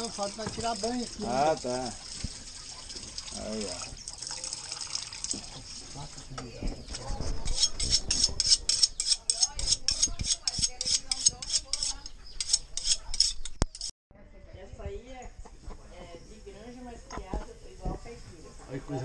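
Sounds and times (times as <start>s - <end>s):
water running from tap: 0.0s - 6.1s
knife blade rasping strokes: 7.4s - 13.9s.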